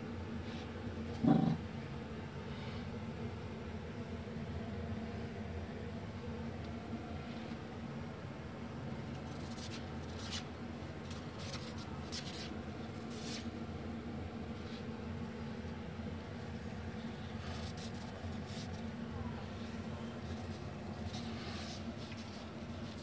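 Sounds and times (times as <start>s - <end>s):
steady low hum: 0.0s - 23.0s
scratching and rubbing: 9.3s - 10.5s, 17.1s - 18.9s.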